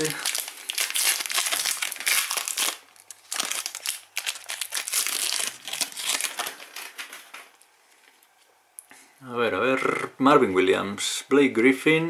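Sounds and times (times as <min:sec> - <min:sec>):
card pack wrapper crinkling: 0:00.0 - 0:07.6.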